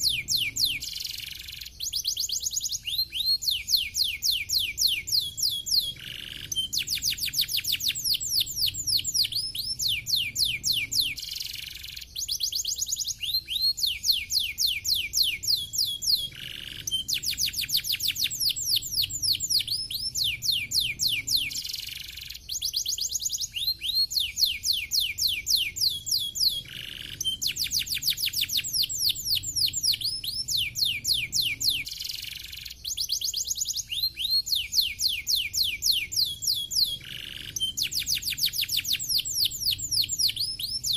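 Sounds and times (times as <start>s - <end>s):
canary singing trills: 0.0s - 40.9s.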